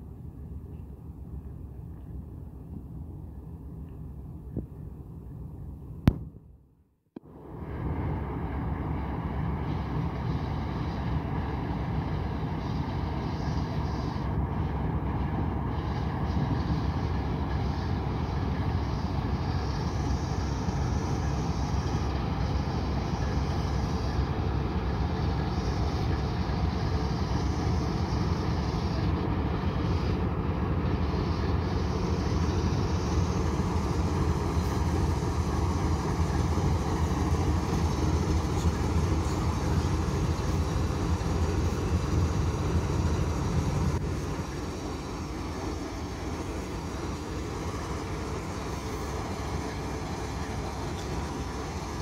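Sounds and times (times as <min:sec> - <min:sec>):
diesel locomotive engine rumble: 0:00.0 - 0:06.6, 0:07.2 - 0:52.0
wheels rolling on rails: 0:15.8 - 0:52.0.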